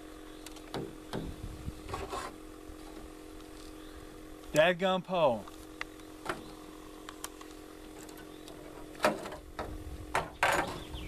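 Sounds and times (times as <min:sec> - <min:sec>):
steady low hum: 0:00.0 - 0:11.0
knocks and rustles: 0:08.0 - 0:10.9.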